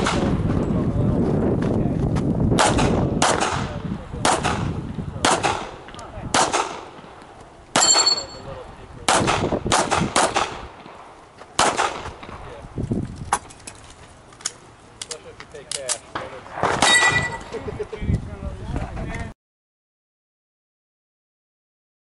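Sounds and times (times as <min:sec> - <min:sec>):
pistol shots: 0:02.6 - 0:08.4, 0:09.0 - 0:12.4, 0:16.1 - 0:17.4
high metallic ring: 0:07.8 - 0:08.5, 0:16.9 - 0:17.5.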